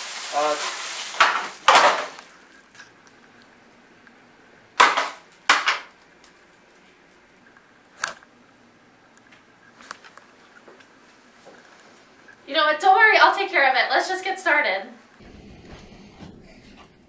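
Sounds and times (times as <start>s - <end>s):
plastic bag rustling: 0.0s - 2.8s.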